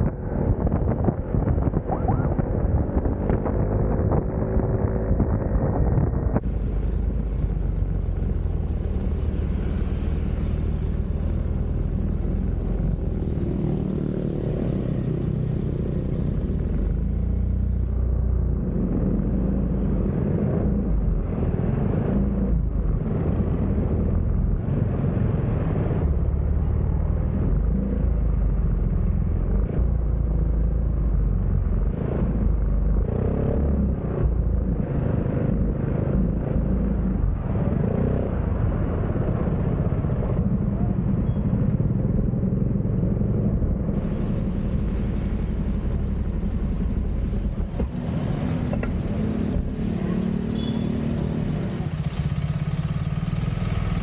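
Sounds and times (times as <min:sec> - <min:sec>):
wind noise on microphone: 0:00.0 - 0:08.0.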